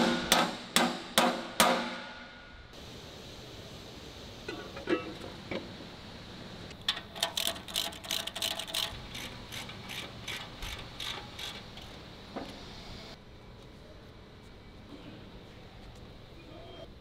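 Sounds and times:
ratchet wrench clicking: 6.9 - 11.9.

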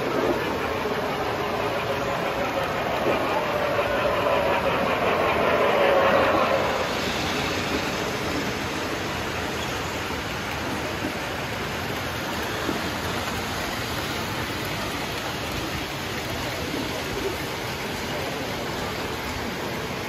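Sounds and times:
toy trains on metal track: 0.0 - 20.0.

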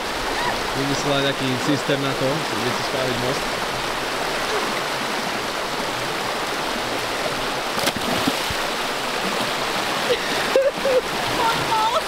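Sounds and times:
creek water flowing: 0.0 - 12.0.

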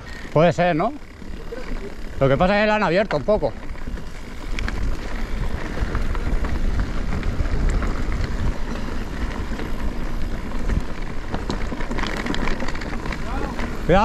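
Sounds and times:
tyres rolling over wet ground: 0.4 - 14.0
wind rumble on microphone: 3.4 - 14.0.

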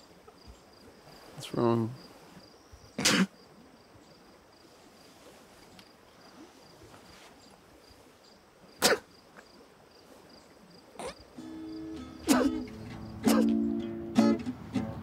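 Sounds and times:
crickets chirping: 0.0 - 15.0
acoustic guitar music: 11.0 - 15.0.

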